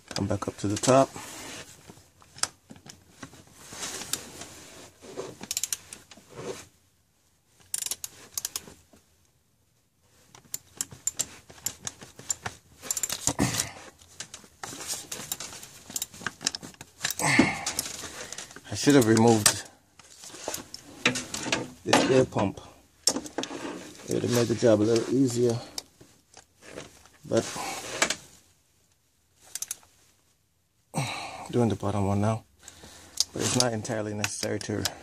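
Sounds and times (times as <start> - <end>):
socket ratchet clicking: 5.5 - 5.9, 7.7 - 8.6, 29.5 - 29.8.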